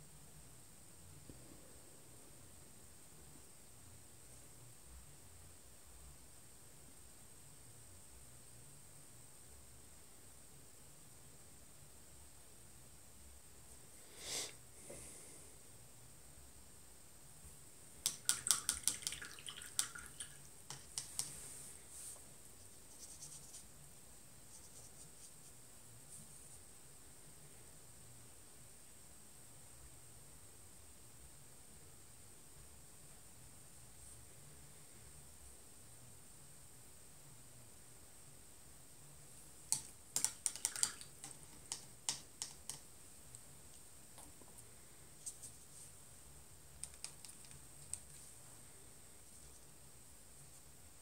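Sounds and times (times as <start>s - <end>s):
paintbrush tapping a water jar: 18.0s - 21.3s, 39.7s - 42.9s.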